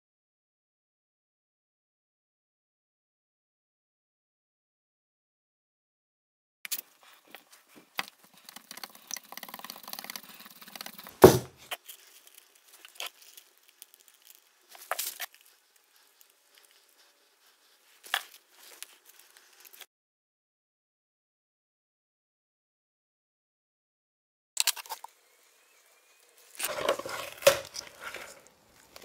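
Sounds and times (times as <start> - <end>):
tape tearing and crinkling: 11.0 - 15.6, 26.5 - 29.0
loud knock: 11.2 - 11.6
taps and rustles: 11.2 - 11.8.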